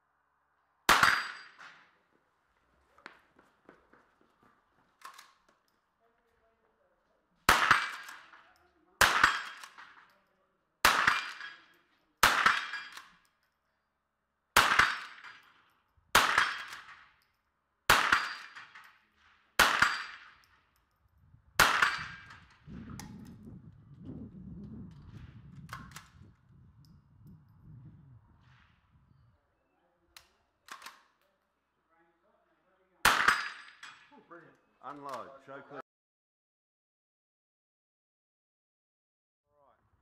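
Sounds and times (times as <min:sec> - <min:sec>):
rifle shots: 0:00.9 - 0:01.8, 0:07.5 - 0:08.4, 0:09.0 - 0:10.1, 0:10.8 - 0:11.6, 0:12.2 - 0:13.1, 0:14.6 - 0:15.4, 0:16.1 - 0:17.1, 0:17.9 - 0:18.9, 0:19.6 - 0:20.5, 0:21.6 - 0:22.5, 0:33.0 - 0:33.8.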